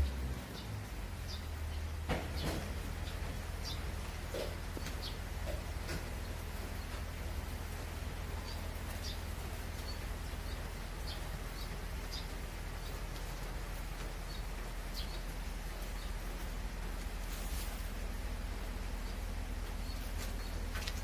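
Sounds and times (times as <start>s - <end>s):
tractor engine humming: 0.0s - 21.0s
bird chirping: 0.5s - 16.6s.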